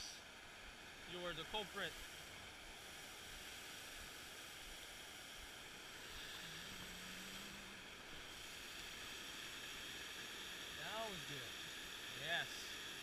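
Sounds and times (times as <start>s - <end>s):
muffled water pouring over weir: 0.0s - 13.0s.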